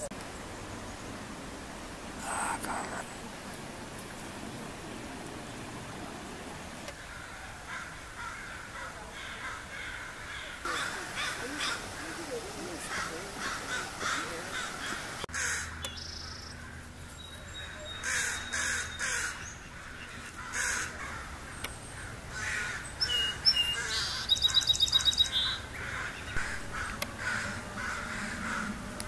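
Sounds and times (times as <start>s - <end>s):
crows cawing: 6.9s - 16.9s, 17.9s - 23.0s, 23.7s - 28.9s
sparrow singing trill: 17.2s - 19.7s, 22.9s - 26.4s.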